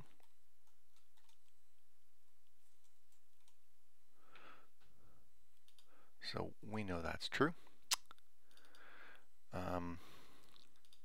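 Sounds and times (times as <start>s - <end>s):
keyboard and mouse clicks: 0.0s - 1.6s, 7.9s - 8.9s, 10.4s - 11.0s
soft breathy sound: 4.1s - 6.2s.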